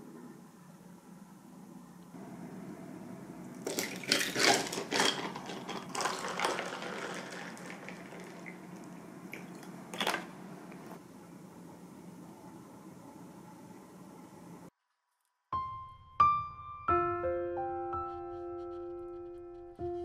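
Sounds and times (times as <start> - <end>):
liquid pouring over ice: 3.6 - 10.3.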